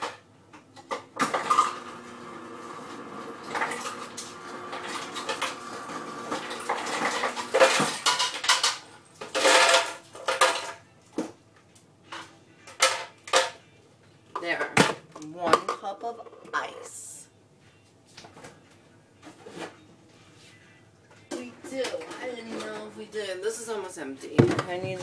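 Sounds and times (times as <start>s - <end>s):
dishes and utensils clattering: 0.0s - 1.8s, 6.3s - 10.9s, 12.0s - 13.7s, 21.2s - 23.0s.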